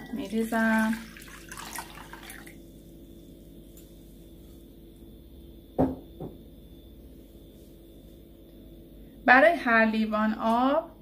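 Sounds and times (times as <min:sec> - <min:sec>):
faint steady hum: 0:00.0 - 0:11.0
glass jug knocking on wooden table: 0:05.8 - 0:06.4.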